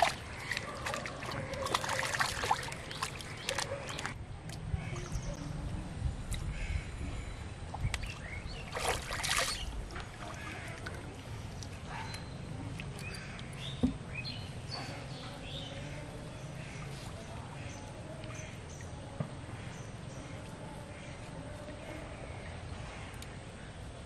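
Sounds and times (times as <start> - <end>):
water sloshing and splashing: 0.0 - 5.3, 7.7 - 14.1.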